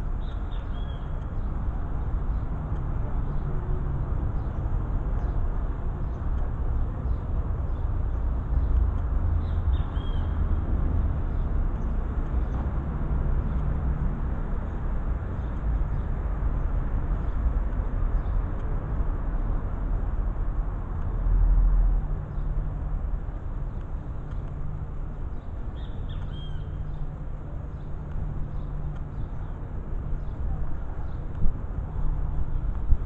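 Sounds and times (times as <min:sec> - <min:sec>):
bird chirping: 0:09.4 - 0:10.4, 0:25.3 - 0:27.0.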